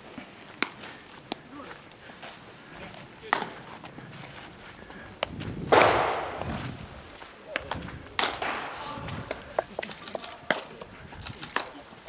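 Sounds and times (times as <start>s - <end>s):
baseballs being hit and caught: 0.6s - 1.8s, 2.9s - 3.8s, 5.2s - 12.0s
bat cracking ball: 3.3s - 3.6s, 5.7s - 6.6s, 8.2s - 9.4s.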